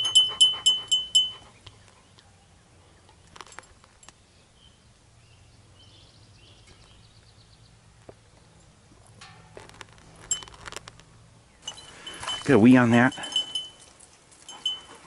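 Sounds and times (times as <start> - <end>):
dog harness hardware jingling: 0.0 - 1.5, 3.4 - 4.1, 9.2 - 10.9, 11.6 - 15.0.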